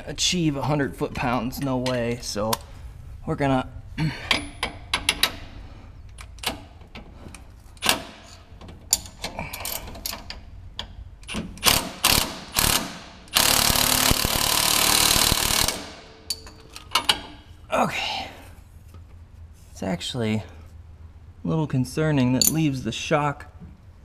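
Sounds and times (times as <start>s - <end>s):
impact wrench hammering: 11.3s - 17.4s
tools clinking on metal: 16.2s - 17.4s, 22.4s - 22.7s.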